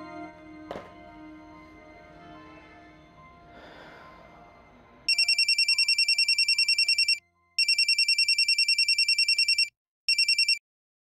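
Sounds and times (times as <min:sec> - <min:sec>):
phone ringtone electronic trill: 0:05.1 - 0:10.6.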